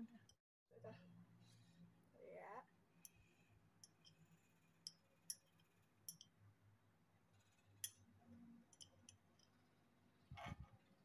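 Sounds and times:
chopsticks tapping glass plate: 4.9 - 6.4.

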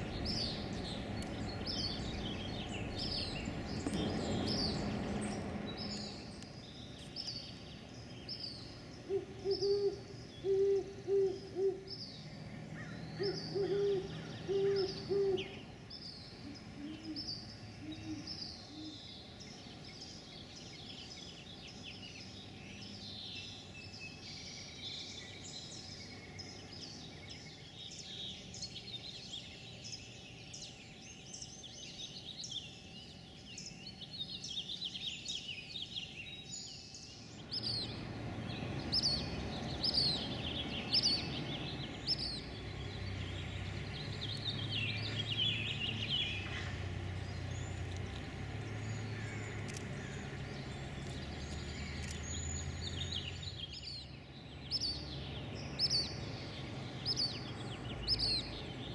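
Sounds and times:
small birds chirping: 0.0 - 58.9
owls hooting: 9.0 - 11.9, 12.8 - 15.6.

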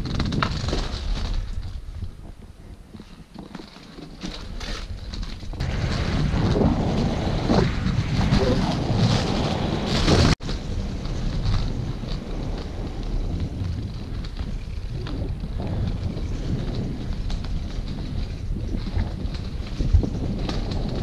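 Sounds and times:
wind buffeting microphone: 0.0 - 3.5, 4.2 - 21.0
skate wheels rolling on stone: 0.0 - 21.0.

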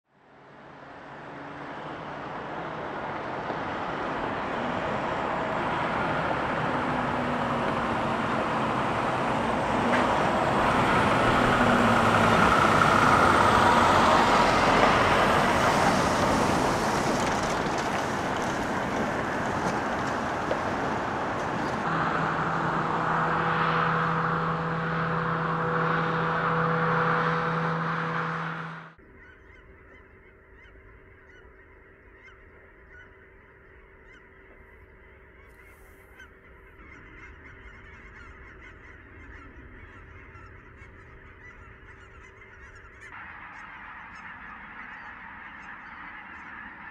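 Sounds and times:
road traffic passing: 0.1 - 29.2, 33.2 - 46.9
truck passing by: 0.2 - 29.0.

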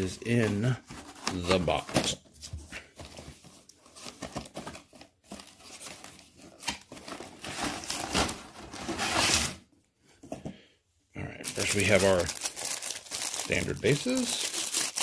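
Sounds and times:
cardboard scraping and rustling: 0.3 - 9.6
plastic packaging crinkling: 11.5 - 15.0.

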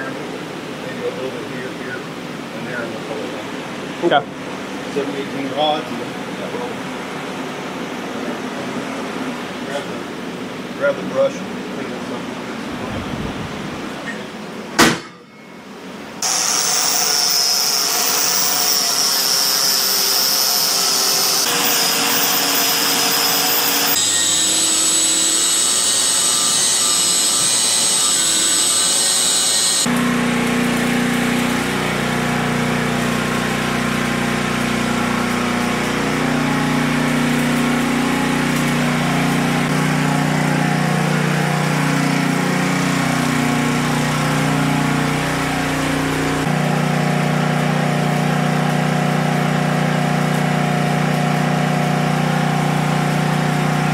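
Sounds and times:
low machine hum: 11.6 - 16.2
power tool high whine: 16.2 - 47.9.

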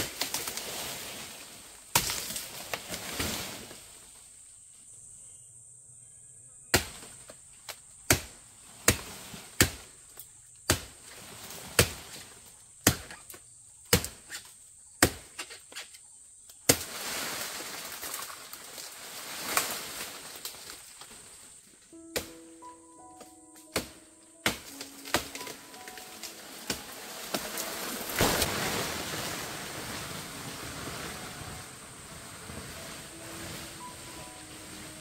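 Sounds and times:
insects buzzing: 0.0 - 35.0
blade chopping into wood: 8.9 - 9.8, 10.7 - 11.0, 12.8 - 13.3, 15.0 - 15.5, 23.8 - 25.6, 26.6 - 28.9
rustling noise: 24.8 - 35.0.

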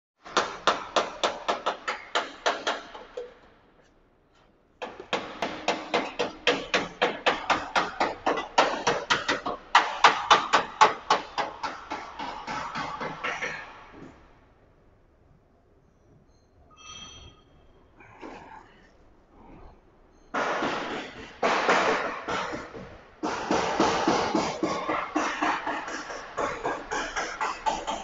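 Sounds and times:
hammer striking sheet metal: 0.3 - 3.4, 4.8 - 13.8, 20.4 - 28.0.

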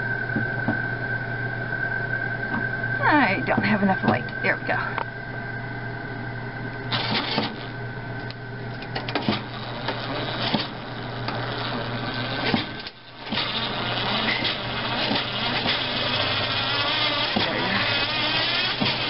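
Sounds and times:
electric screwdriver whirring: 9.1 - 19.0.

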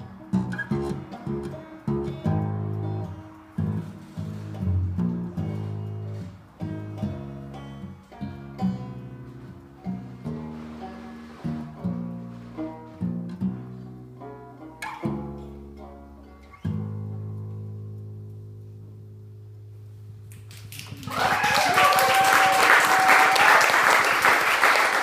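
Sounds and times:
banjo plucking: 0.0 - 20.3
bass guitar: 0.0 - 21.3
audience applause: 20.3 - 25.0.

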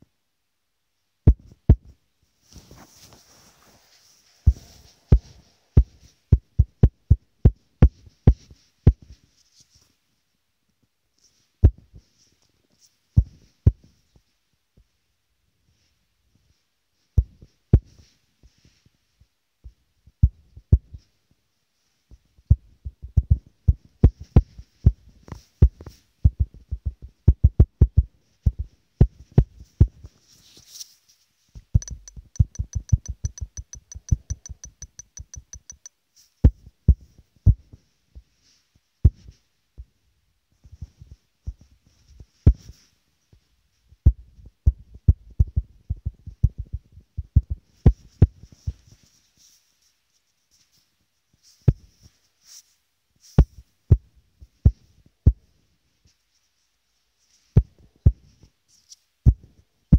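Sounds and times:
fast even ticking: 31.8 - 35.9
fingers tapping touchscreen: 31.8 - 35.9.

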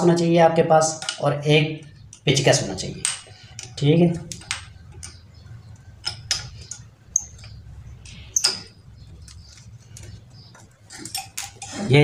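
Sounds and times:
spanner clinking against bolts: 2.0 - 7.6, 8.4 - 11.8.

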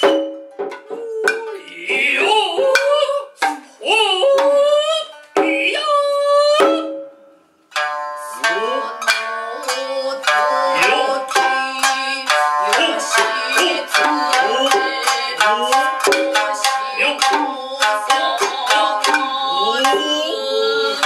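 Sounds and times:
sharp drum strokes: 0.0 - 3.7
bamboo flute sliding notes: 0.0 - 5.9
plucked shamisen notes: 0.0 - 21.0.

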